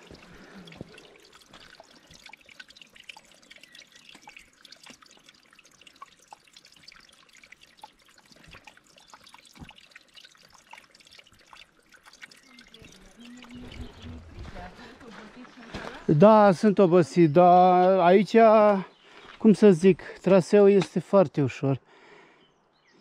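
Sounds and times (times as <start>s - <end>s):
spring water trickling: 0.0s - 20.5s
water dripping: 0.0s - 21.1s.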